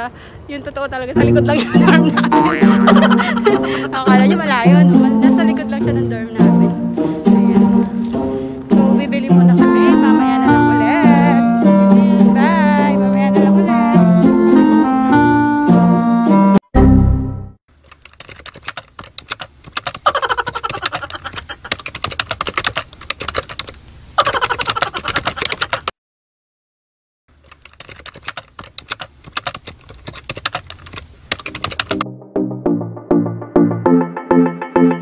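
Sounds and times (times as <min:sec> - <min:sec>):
music: 0:01.2 - 0:02.9, 0:03.5 - 0:17.6, 0:32.0 - 0:35.0
keyboard key clicks: 0:17.9 - 0:23.8, 0:27.5 - 0:32.0.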